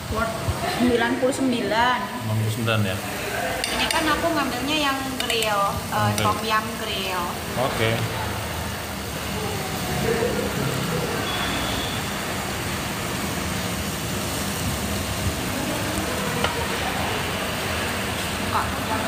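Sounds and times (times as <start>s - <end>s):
meat sizzling on grill: 0.0s - 19.0s
faint voices: 7.5s - 11.8s.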